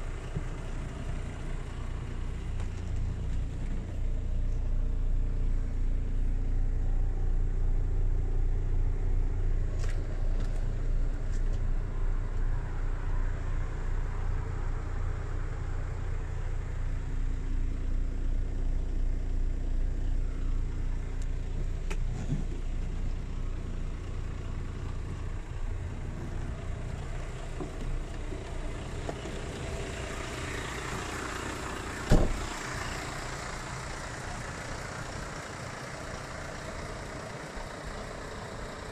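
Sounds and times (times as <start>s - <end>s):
diesel engine idling: 0.0s - 38.9s
sharp thump: 32.1s - 32.5s.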